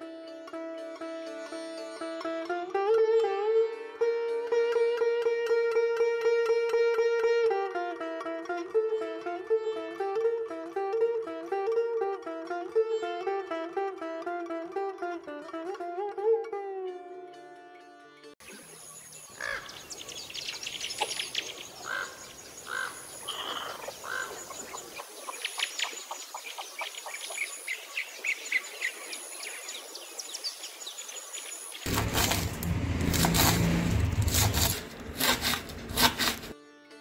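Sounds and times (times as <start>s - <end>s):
small birds chirping: 18.4s - 31.9s
knife chopping on wooden board: 31.9s - 36.5s
low hum: 31.9s - 36.5s.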